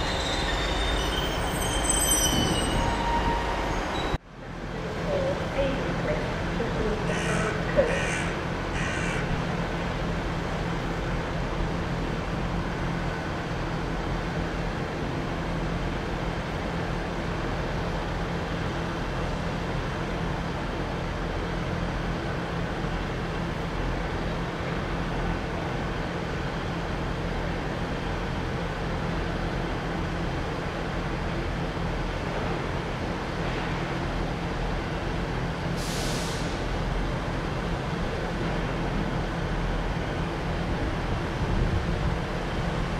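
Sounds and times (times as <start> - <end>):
train passing over points: 0.0 - 7.1
diesel train engine hum: 0.0 - 42.9.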